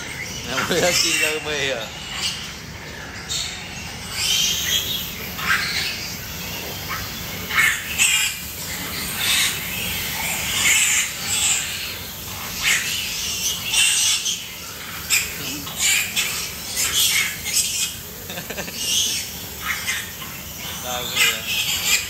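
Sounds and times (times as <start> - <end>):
piglets squealing: 0.0 - 22.0.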